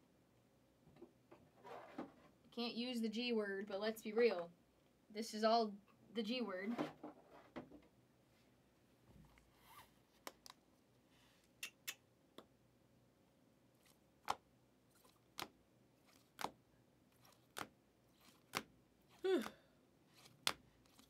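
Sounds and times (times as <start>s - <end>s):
cards snapping: 15.0s - 16.6s, 17.2s - 18.7s, 20.1s - 21.0s.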